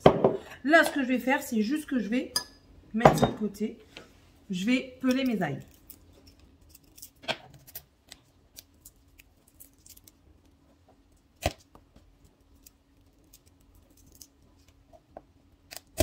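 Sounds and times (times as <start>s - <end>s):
garlic skin crackling: 5.1s - 15.0s, 15.6s - 16.0s.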